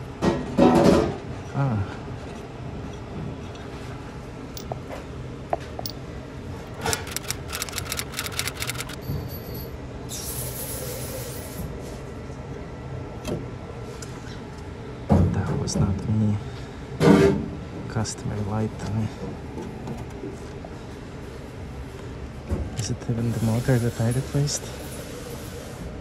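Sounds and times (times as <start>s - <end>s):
rapid clicking and rattling: 6.7s - 9.0s.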